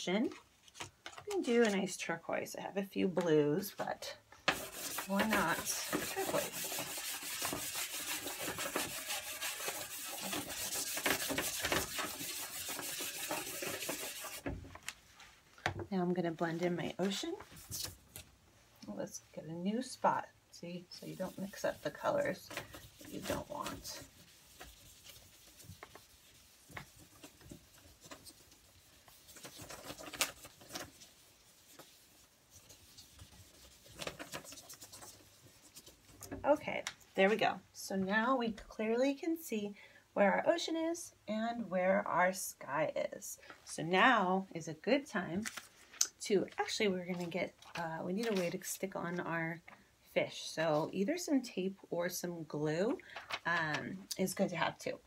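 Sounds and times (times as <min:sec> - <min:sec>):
chalk pastel scraping on paper: 0:04.5 - 0:14.4, 0:20.9 - 0:36.0.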